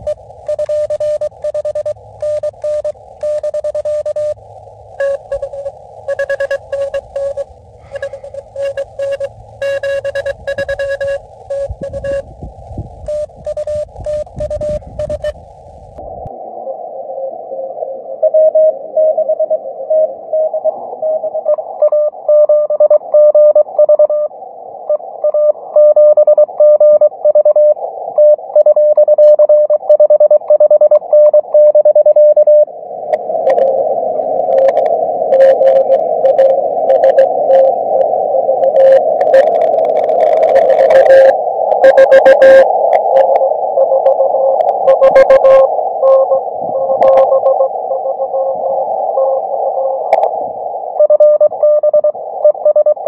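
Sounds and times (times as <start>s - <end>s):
morse code beeps: 0.0s - 4.4s, 5.0s - 12.3s, 13.0s - 15.4s, 21.8s - 24.3s, 25.3s - 32.7s, 34.5s - 37.7s, 38.6s - 48.6s, 51.0s - 53.0s
radio crackles: 0.0s - 16.4s, 33.1s - 53.0s
radio band hiss: 0.0s - 18.2s, 33.1s - 53.0s.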